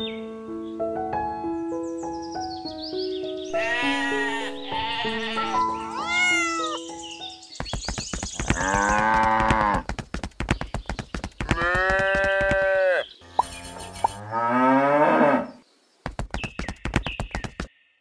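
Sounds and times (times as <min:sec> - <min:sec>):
light background music: 0:00.0 - 0:07.7
fast run of clicks: 0:07.6 - 0:12.6, 0:16.0 - 0:17.7.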